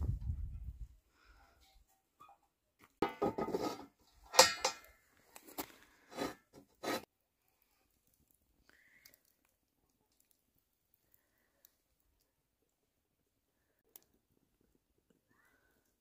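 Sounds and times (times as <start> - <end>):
kitchenware clinking and clattering: 3.0 - 4.9.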